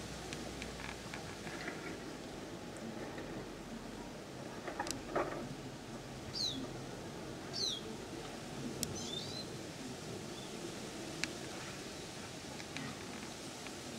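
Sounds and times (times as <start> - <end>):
background noise: 0.0 - 13.9
bird chirping: 6.3 - 6.6, 7.5 - 7.8, 8.9 - 9.5.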